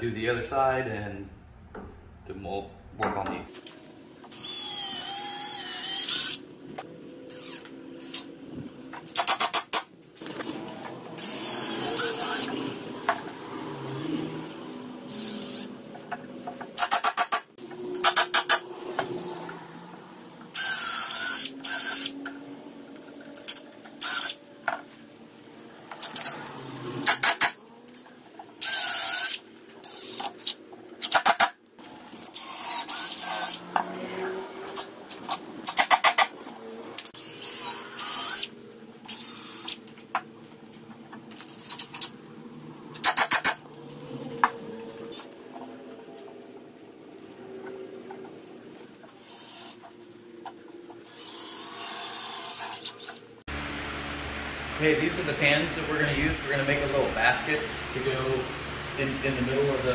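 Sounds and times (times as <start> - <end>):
cordless drill whining: 4.3 - 6.4, 11.2 - 12.5
drill clutch rapid clicking: 16.8 - 18.6, 27.0 - 27.6, 43.0 - 43.6.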